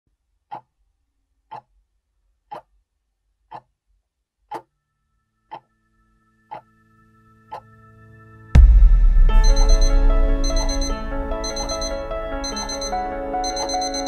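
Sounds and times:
clock ticking: 0:00.4 - 0:00.8, 0:01.5 - 0:01.7, 0:02.5 - 0:02.8, 0:03.5 - 0:03.7, 0:08.6 - 0:14.0
held musical chord: 0:07.9 - 0:14.0.

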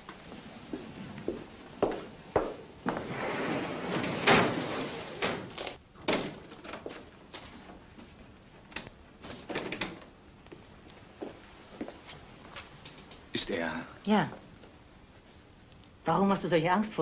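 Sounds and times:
door opening and shutting: 0:03.0 - 0:06.9.

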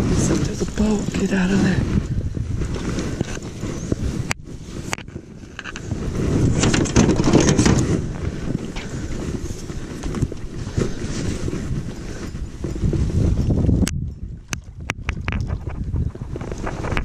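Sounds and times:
wind buffeting microphone: 0:00.0 - 0:17.0
knocks and rustles of gear: 0:04.3 - 0:13.5.

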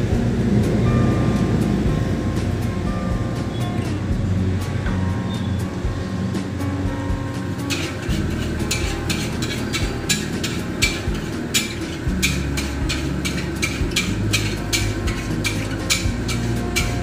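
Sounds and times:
gas burner rumbling: 0:00.0 - 0:17.0
spatula clanking on wok: 0:07.5 - 0:17.0.

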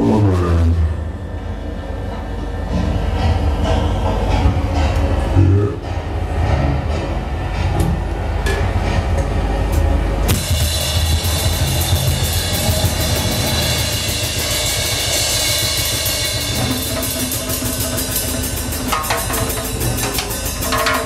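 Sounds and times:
low steady drone: 0:00.0 - 0:20.9
drum kit playing fast: 0:10.2 - 0:21.0
cymbal wash: 0:10.3 - 0:21.0.

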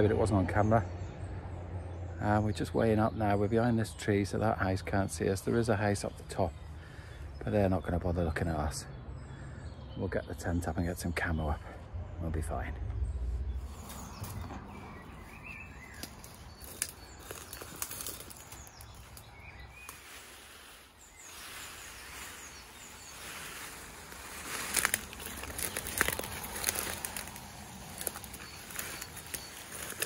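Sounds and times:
rustling and crackling: 0:13.6 - 0:30.0.

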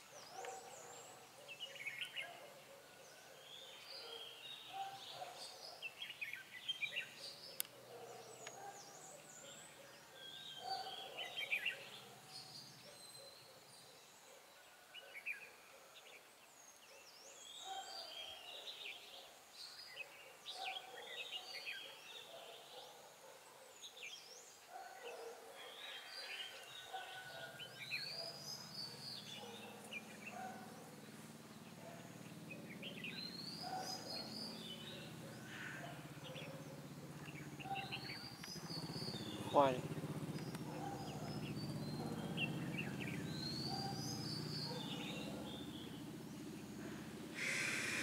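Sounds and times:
birds chirping and singing: 0:00.0 - 0:48.0.

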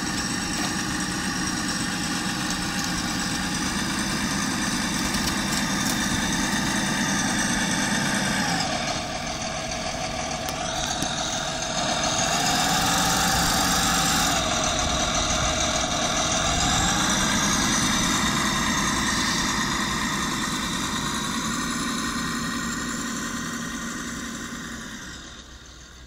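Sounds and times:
model tractor mechanical whine: 0:00.0 - 0:26.0.

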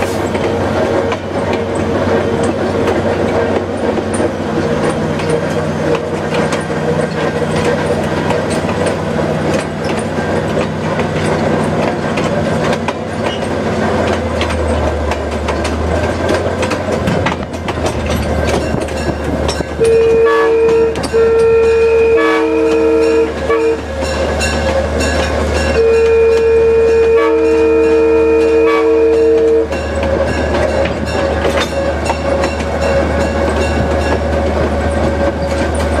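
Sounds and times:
diesel locomotive engine running: 0:00.0 - 0:36.0
two-note air horn blasts: 0:19.8 - 0:23.8, 0:25.8 - 0:29.8.

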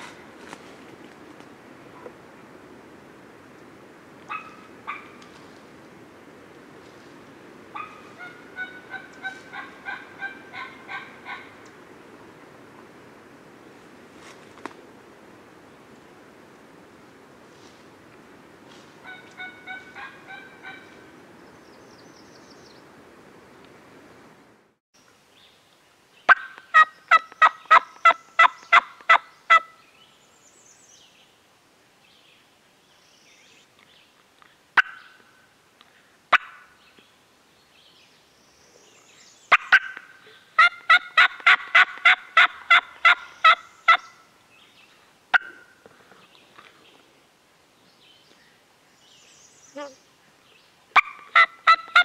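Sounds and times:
turkey yelping: 0:07.8 - 0:11.6, 0:19.0 - 0:21.0, 0:40.6 - 0:44.1, 0:51.0 - 0:52.0.

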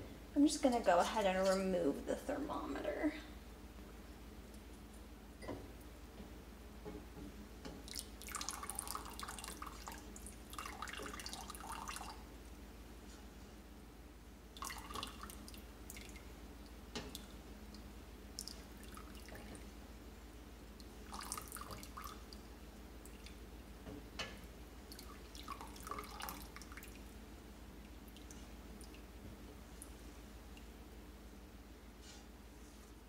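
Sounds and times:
liquid trickling and dripping into pot: 0:07.6 - 0:12.2, 0:14.6 - 0:19.8, 0:20.7 - 0:23.4, 0:24.2 - 0:27.2.

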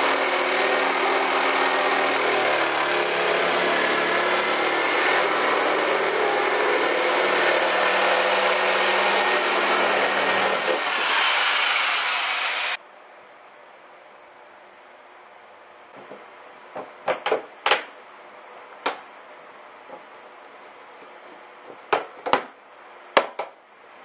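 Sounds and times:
jigsaw motor whine: 0:00.0 - 0:12.8.

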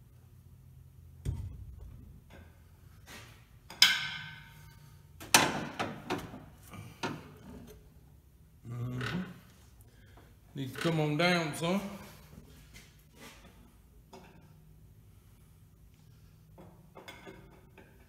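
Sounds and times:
metal clanks: 0:01.2 - 0:07.8.

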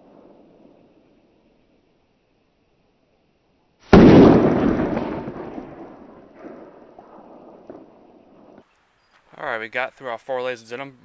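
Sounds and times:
pistol shot: 0:03.9 - 0:08.6.

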